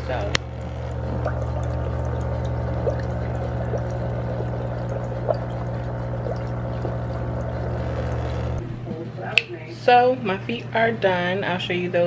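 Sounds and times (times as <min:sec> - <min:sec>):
water churning and bubbling: 0:00.0 - 0:09.0
motor hum: 0:00.0 - 0:12.0
small ticks and splashes: 0:00.4 - 0:08.6.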